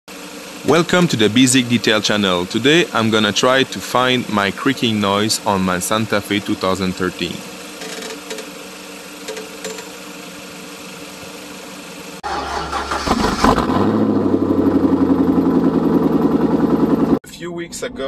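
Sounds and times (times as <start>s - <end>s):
engine starting and throbbing: 0.1s - 7.8s, 11.4s - 17.2s.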